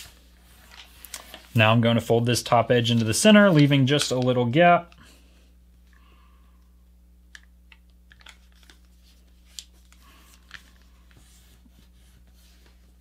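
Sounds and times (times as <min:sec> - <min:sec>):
low steady hum: 0:00.0 - 0:13.0
paper rustling and creasing: 0:08.1 - 0:13.0.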